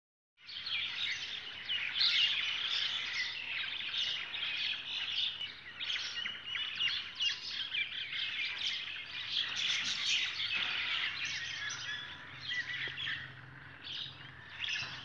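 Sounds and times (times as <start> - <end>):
small birds chirping: 0.4 - 15.0.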